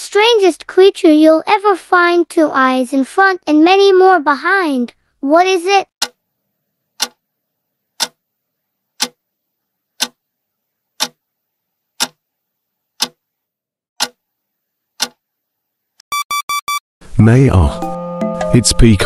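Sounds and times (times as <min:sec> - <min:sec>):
timer ticking: 0:07.0 - 0:07.2, 0:08.0 - 0:08.2, 0:12.0 - 0:12.2, 0:14.0 - 0:14.2
short electronic beeps: 0:16.1 - 0:16.8.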